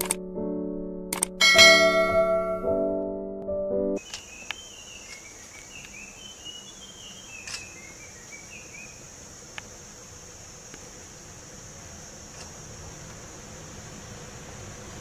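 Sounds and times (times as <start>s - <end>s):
piano-like music: 0.0s - 4.0s
bird chirps: 4.0s - 9.0s.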